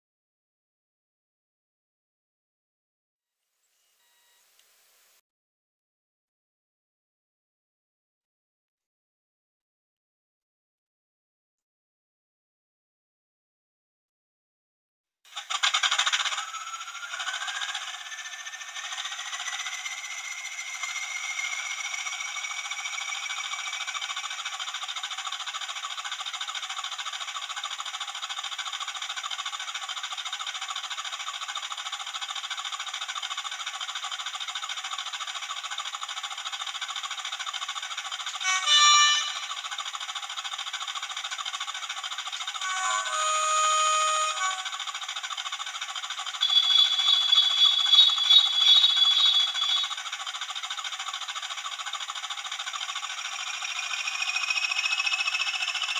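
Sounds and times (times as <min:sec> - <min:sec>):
model diesel engine idling: 0:15.3 - 0:55.9
rising engine whine: 0:15.4 - 0:27.0, 0:38.2 - 0:40.2, 0:41.6 - 0:51.1, 0:52.6 - 0:55.9
train horn blasts: 0:38.4 - 0:39.6, 0:42.6 - 0:44.9, 0:46.4 - 0:49.8.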